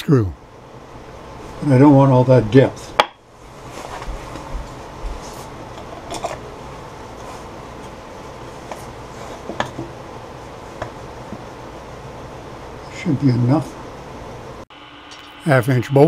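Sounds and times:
steady machine hum: 0.0s - 3.6s, 9.9s - 16.0s.

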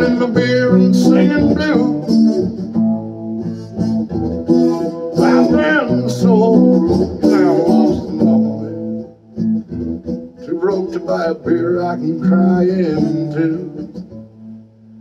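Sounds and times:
man singing: 0.0s - 2.5s, 4.8s - 9.0s, 10.4s - 14.2s
acoustic guitar strummed: 0.0s - 15.0s.

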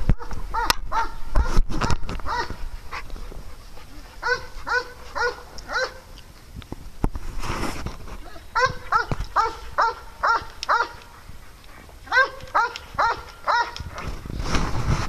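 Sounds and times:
dog play barking: 2.3s - 2.6s, 4.2s - 6.0s, 8.6s - 11.0s, 12.1s - 13.8s.

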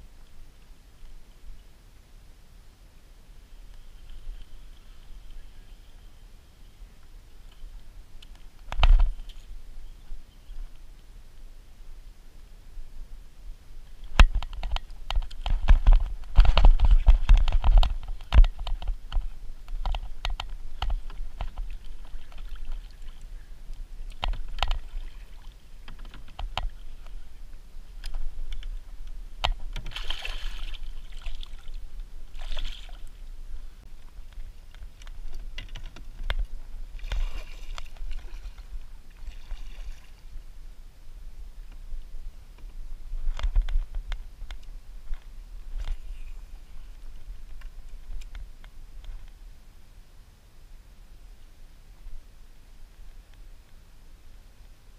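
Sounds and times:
paddle splashing in water: 19.8s - 23.4s, 24.0s - 27.1s, 29.5s - 33.2s, 36.9s - 40.3s.

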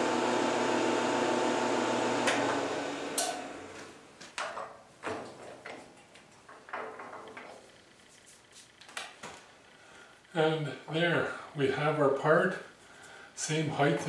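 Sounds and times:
milling machine motor running: 0.0s - 3.8s.

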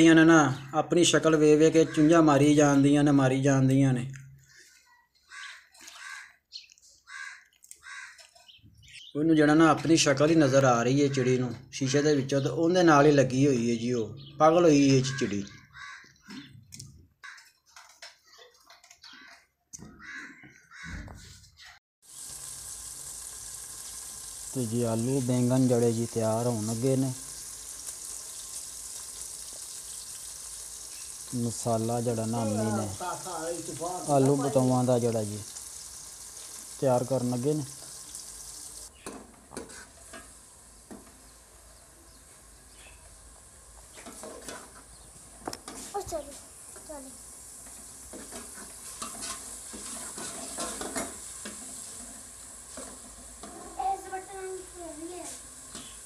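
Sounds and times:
onions sizzling in oil: 0.0s - 3.6s, 22.0s - 56.0s
birds calling harshly: 1.6s - 2.8s, 4.4s - 9.3s, 14.1s - 21.8s, 29.7s - 31.3s, 55.8s - 56.0s.

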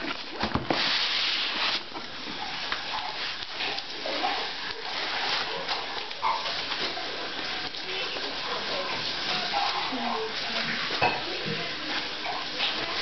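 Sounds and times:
packaging rustling and scraping: 0.0s - 13.0s.

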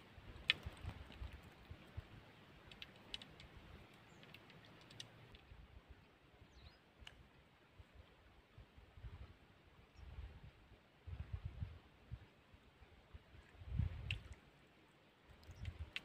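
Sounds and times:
faint clicks: 0.4s - 2.0s, 2.6s - 5.5s, 7.0s - 7.2s, 13.4s - 14.4s, 15.3s - 16.0s.

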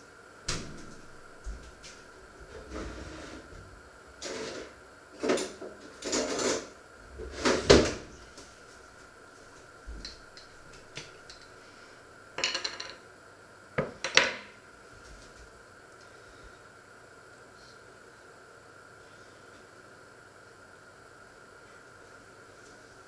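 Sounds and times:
drawers and crockery rattling: 5.3s - 6.7s.

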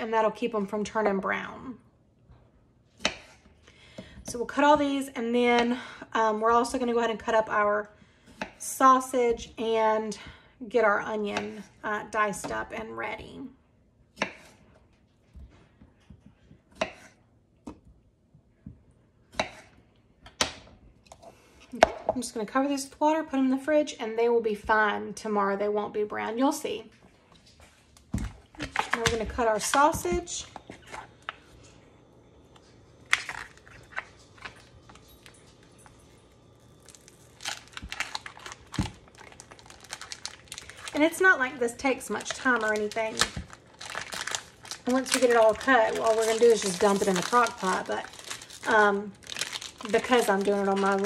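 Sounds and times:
plastic package crinkling: 33.0s - 35.7s, 36.6s - 51.0s.

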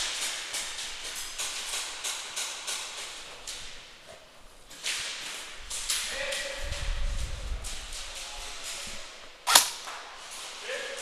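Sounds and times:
airsoft gunshots cracking: 9.5s - 10.0s.

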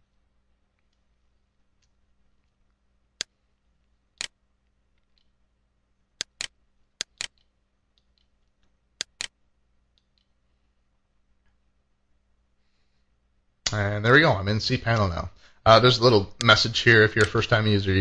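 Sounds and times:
computer mouse clicking: 4.2s - 4.4s, 6.2s - 10.4s, 17.2s - 17.4s.

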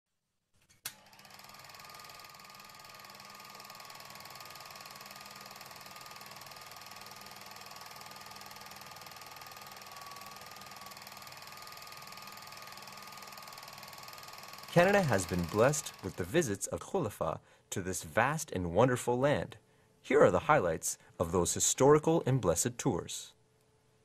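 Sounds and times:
rapid mechanical clicking: 0.8s - 16.5s.

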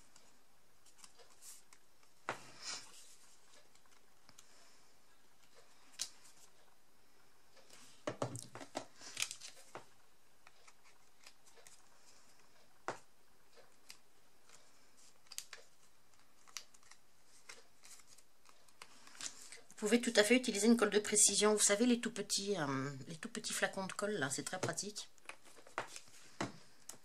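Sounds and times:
paper rustling: 8.4s - 11.8s, 13.7s - 19.7s, 24.6s - 27.0s.

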